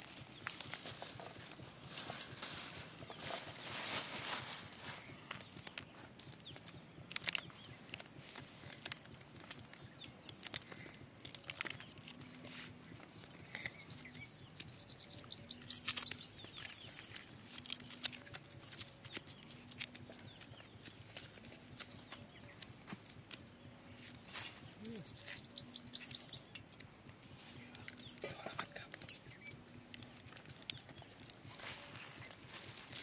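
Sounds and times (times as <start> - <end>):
bird chattering: 13.0 - 17.3, 24.6 - 26.6.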